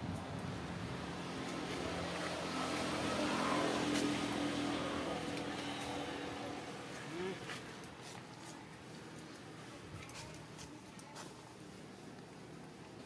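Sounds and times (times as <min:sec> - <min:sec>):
vehicle engine passing: 0:00.4 - 0:07.5.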